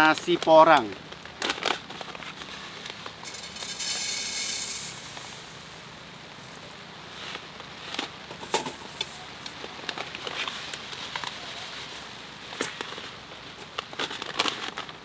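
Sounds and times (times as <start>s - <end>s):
dry rice grains poured: 2.5s - 9.3s.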